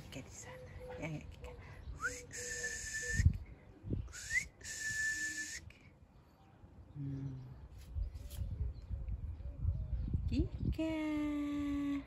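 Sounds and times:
person whistling: 0:02.0 - 0:03.4, 0:04.1 - 0:05.7.

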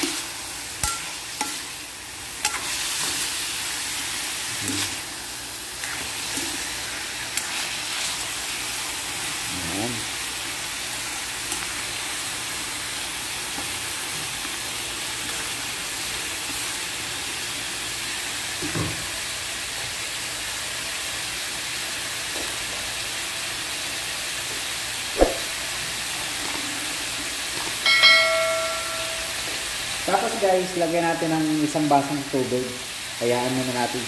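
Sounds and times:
bones sizzling in oil: 0:00.0 - 0:34.0
sharp knock: 0:25.2 - 0:25.5.

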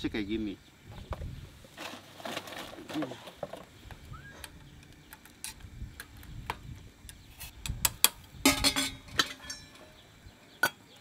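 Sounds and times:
metallic ring: 0:08.5 - 0:10.0.

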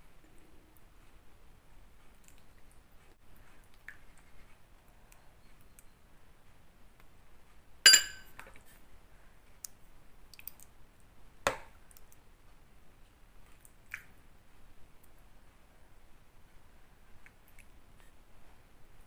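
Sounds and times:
ceramic bowls clinking: 0:07.9 - 0:08.4.

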